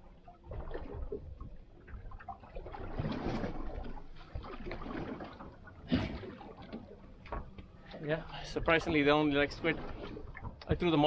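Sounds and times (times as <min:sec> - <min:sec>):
water sloshing against boat hull: 0:00.0 - 0:11.0.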